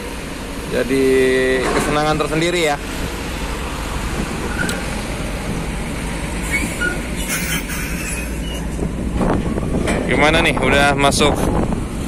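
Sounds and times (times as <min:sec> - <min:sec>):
diesel truck engine running: 0:00.0 - 0:12.0
steel trailer chassis rattling: 0:00.9 - 0:12.0
short squeaks: 0:04.4 - 0:04.8, 0:06.4 - 0:08.8.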